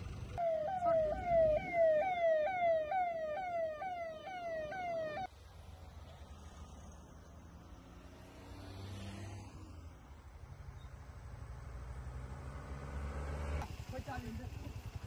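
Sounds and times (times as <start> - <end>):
emergency vehicle siren: 0.3 - 5.3.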